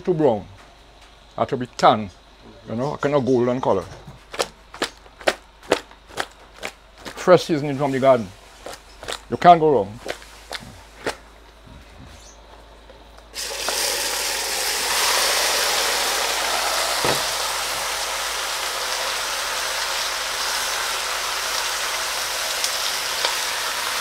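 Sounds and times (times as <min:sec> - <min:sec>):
meat sizzling in hot oil: 0:13.4 - 0:24.0.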